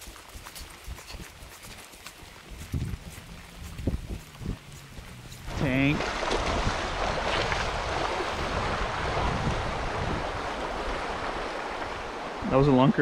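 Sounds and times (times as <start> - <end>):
river water rushing: 4.7 - 13.0.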